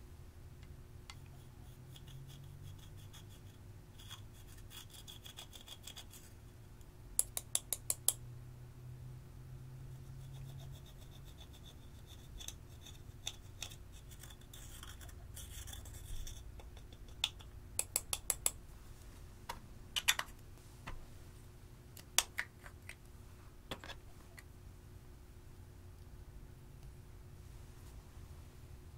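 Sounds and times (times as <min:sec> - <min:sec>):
metal tool scraping eyeshadow: 0:01.3 - 0:06.3, 0:10.2 - 0:16.4.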